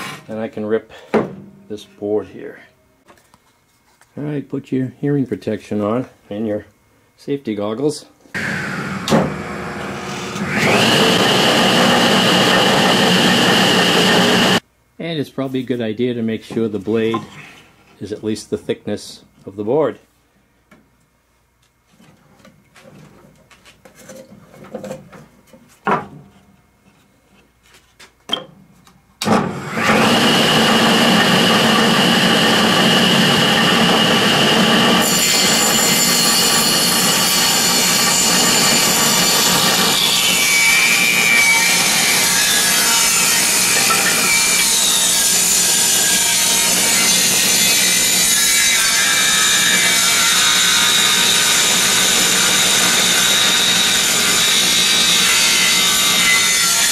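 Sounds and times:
saw blade cutting wood: 0:00.0 - 0:00.3, 0:08.4 - 0:14.6, 0:29.5 - 0:56.9
table saw running: 0:08.4 - 0:14.6, 0:29.3 - 0:56.9.

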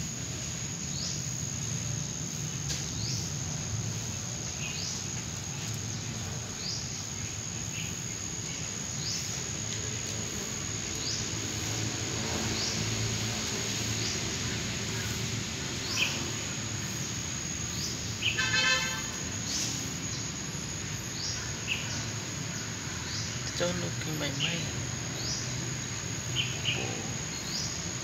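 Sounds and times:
high insect drone: 0:00.0 - 0:28.0
buzzy horn-like note: 0:18.2 - 0:19.2.

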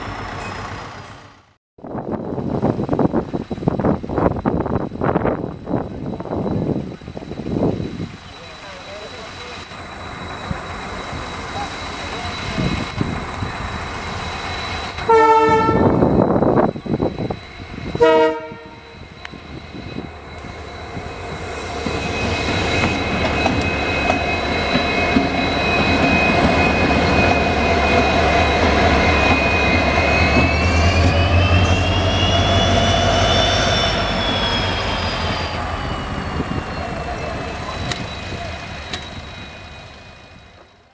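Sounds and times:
diesel locomotive engine passing: 0:00.0 - 0:40.9
locomotive horn: 0:15.1 - 0:16.0, 0:18.0 - 0:18.9
rising and falling whine: 0:18.8 - 0:40.8.

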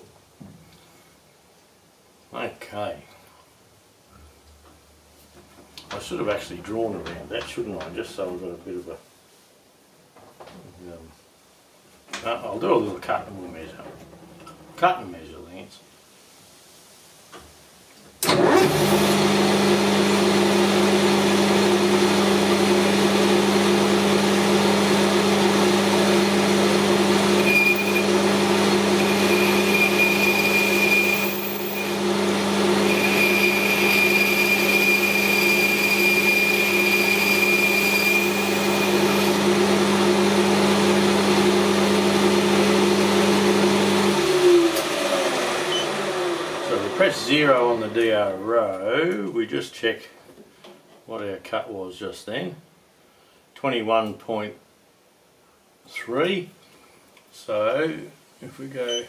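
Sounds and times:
metal lathe running: 0:24.8 - 0:41.4
thin high whine: 0:27.2 - 0:32.0, 0:32.8 - 0:39.4.

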